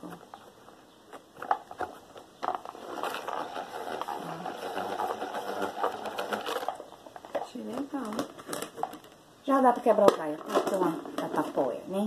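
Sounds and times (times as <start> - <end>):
plastic clicking and rubbing: 0.0 - 9.2.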